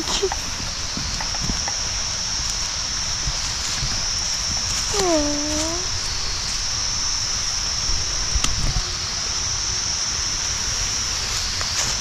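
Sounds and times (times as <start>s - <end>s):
high-pitched insect chorus: 0.0s - 12.0s
low wind rumble: 0.0s - 12.0s.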